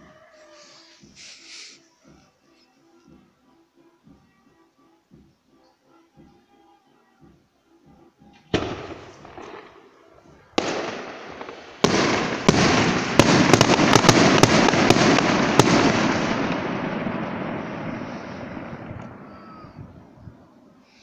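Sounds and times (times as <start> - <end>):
sharp firework cracks: 8.5 - 10.0, 10.6 - 19.8
firework bangs: 8.5 - 20.7
dense firework crackle: 8.6 - 21.0.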